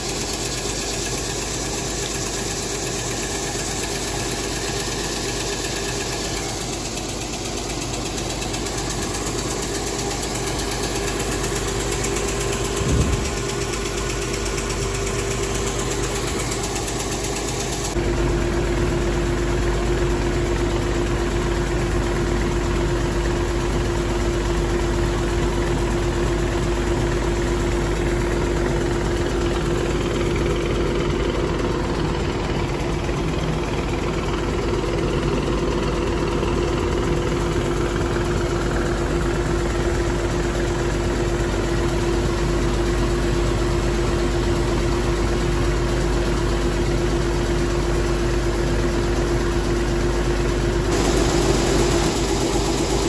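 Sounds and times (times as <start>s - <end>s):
ground feed pouring from metal spout: 0.0s - 19.0s, 50.9s - 53.0s
deep machinery drone: 0.0s - 53.0s
machinery humming: 5.6s - 18.8s, 50.6s - 53.0s.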